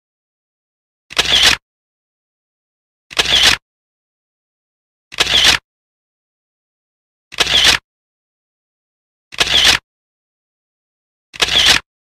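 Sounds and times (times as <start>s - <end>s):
camera shutter clicking: 1.1s - 1.6s, 3.1s - 3.6s, 5.1s - 5.6s, 7.3s - 7.8s, 9.4s - 9.8s, 11.4s - 11.8s.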